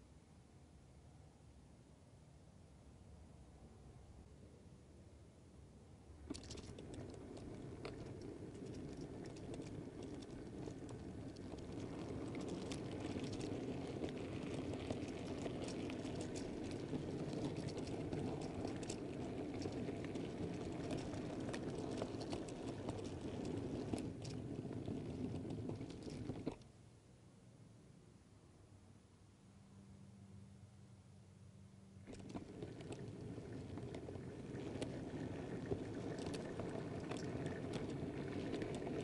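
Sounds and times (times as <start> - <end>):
model train wheels and motor rumbling: 0.0 - 26.7, 31.0 - 39.0
clicks over rail joints: 6.3 - 26.6, 32.1 - 39.0.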